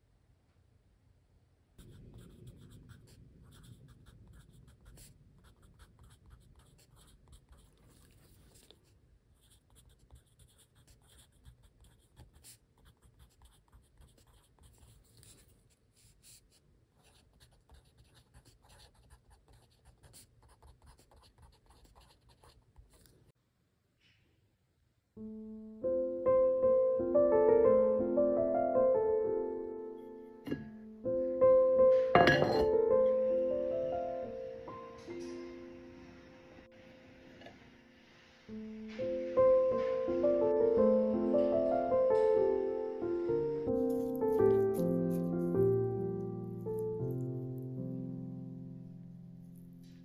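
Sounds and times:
pencil writing on paper: 1.8 - 8.7, 9.4 - 23.1.

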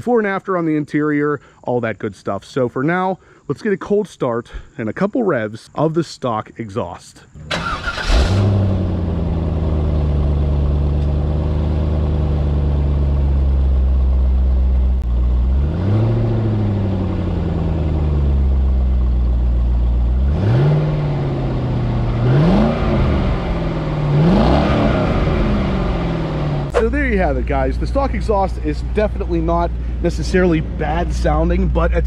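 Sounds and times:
car engine idling and revving: 7.4 - 32.0.

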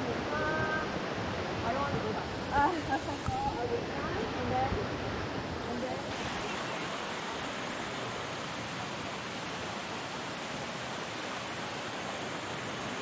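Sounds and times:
creek water rushing: 0.0 - 13.0.

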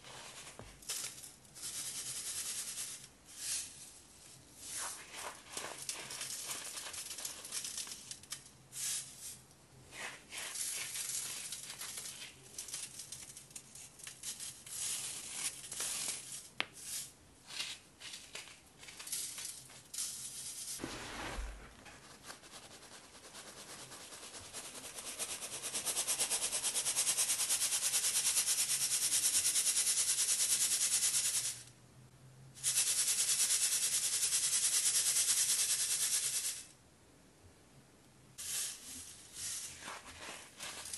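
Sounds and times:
crumbs rattling on wire mesh: 5.1 - 8.6, 10.5 - 20.8, 38.4 - 40.9
dull thump: 20.8 - 21.8.

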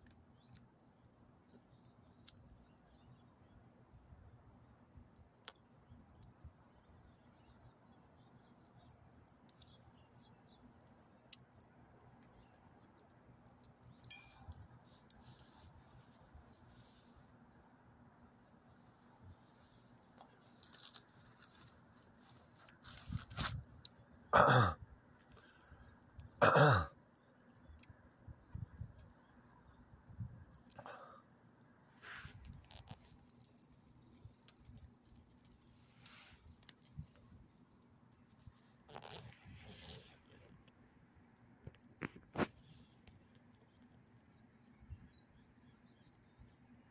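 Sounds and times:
faint small clicks: 4.6 - 6.5, 27.1 - 29.8
dog collar tag jingling: 11.3 - 17.1, 32.6 - 37.4
short rustles: 19.7 - 23.8.

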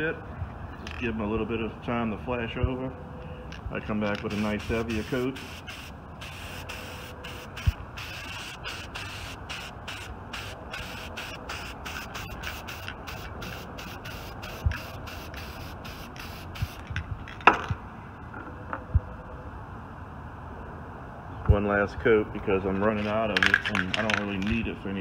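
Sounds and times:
aerosol spray hissing: 4.2 - 16.8.

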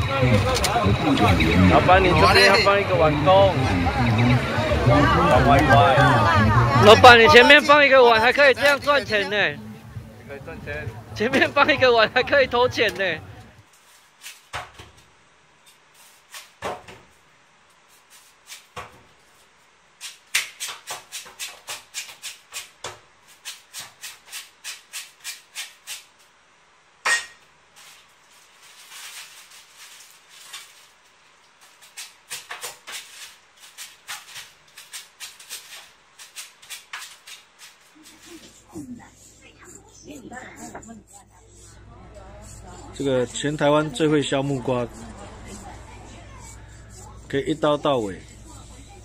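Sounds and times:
blade scraping fruit skin: 20.0 - 26.2.

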